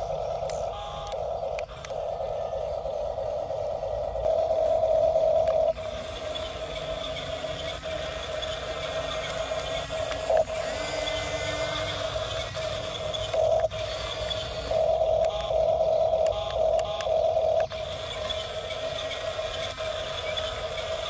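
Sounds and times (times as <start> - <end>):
toy motors whining: 0.0 - 21.0.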